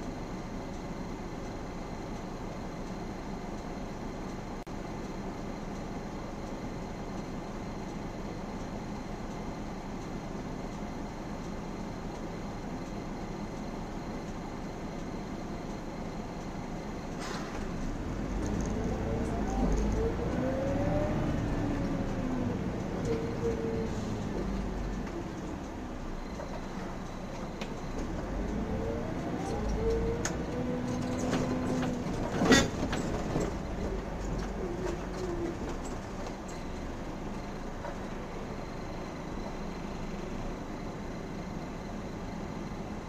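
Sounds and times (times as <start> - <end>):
bus diesel engine: 0.0 - 43.0.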